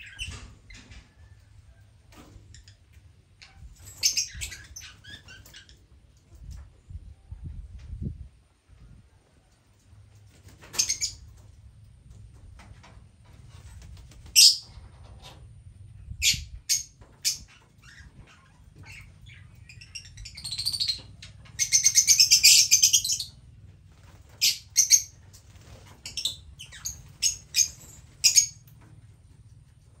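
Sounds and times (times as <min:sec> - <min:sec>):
lovebirds chirping: 0:17.2 - 0:23.4, 0:26.0 - 0:28.6.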